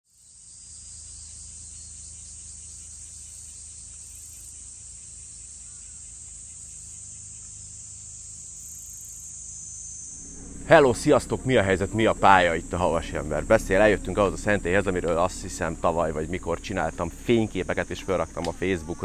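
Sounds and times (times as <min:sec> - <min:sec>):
insects droning: 0:00.1 - 0:19.0
faint low rumble: 0:10.2 - 0:19.0.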